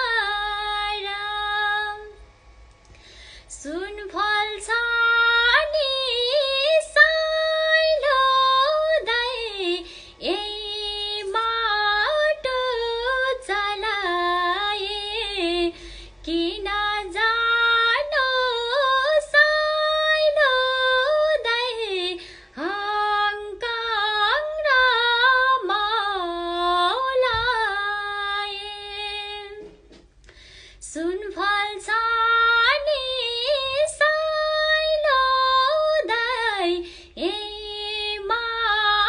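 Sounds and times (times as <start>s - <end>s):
woman singing unaccompanied: 0.0s - 2.2s, 3.5s - 29.8s, 30.8s - 39.0s
singer breathing: 2.8s - 3.6s, 9.8s - 10.2s, 15.7s - 16.2s, 22.2s - 22.6s, 30.2s - 30.9s, 36.8s - 37.2s.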